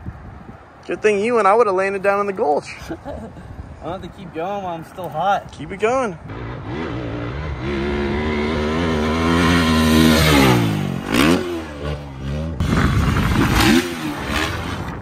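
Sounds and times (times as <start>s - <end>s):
dirt bike engine revving: 6.2s - 15.0s.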